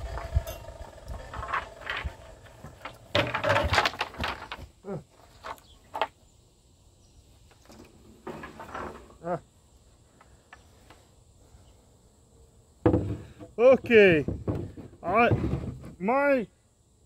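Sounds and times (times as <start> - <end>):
wooden floor strips clacking: 0.0 - 6.1.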